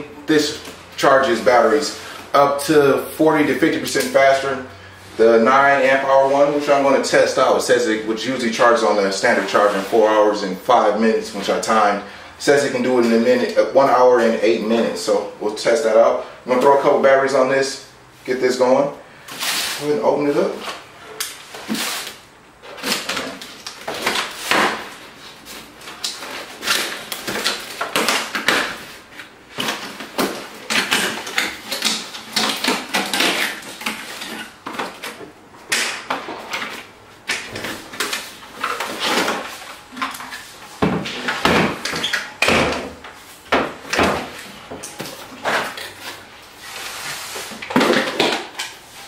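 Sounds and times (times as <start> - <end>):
scrapes and knocks of contents: 21.5 - 35.4
packaging rustling and crackling: 22.7 - 35.2.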